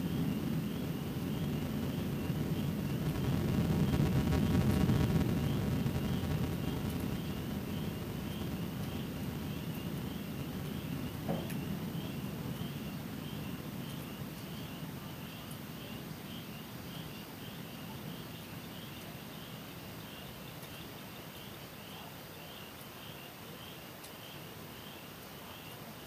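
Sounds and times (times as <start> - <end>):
distant thunder rumbling: 0.0 - 17.1.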